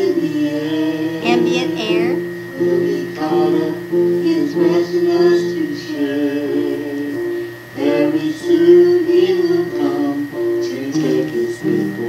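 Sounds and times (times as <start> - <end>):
woman singing gospel song: 1.2 - 2.2, 10.7 - 11.6.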